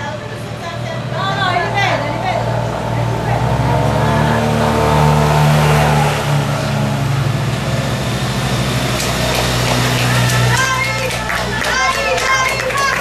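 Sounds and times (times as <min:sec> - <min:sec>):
motorbike engines passing: 0:00.0 - 0:13.0.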